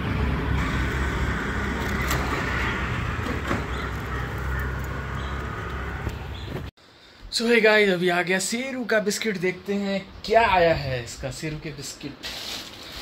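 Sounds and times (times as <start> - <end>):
auto-rickshaw engine: 0.0 - 6.7
motorbike engine: 0.0 - 6.7
traffic rumble: 0.0 - 6.7.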